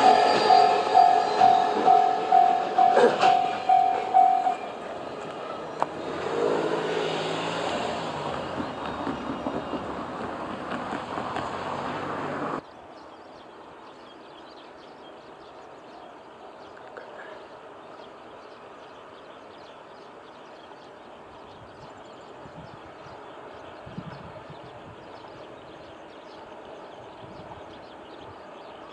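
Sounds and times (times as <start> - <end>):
train wheels rumbling on track: 0.0 - 12.6
faint outdoor background: 0.0 - 28.9.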